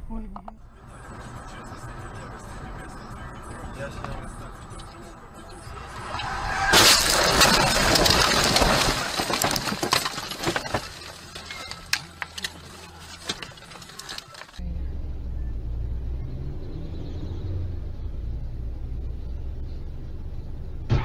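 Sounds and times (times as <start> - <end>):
car driving in traffic hum: 0.0 - 8.3, 10.9 - 21.0
car crashing into bushes: 5.8 - 14.6
debris and branches rattling: 6.2 - 14.6.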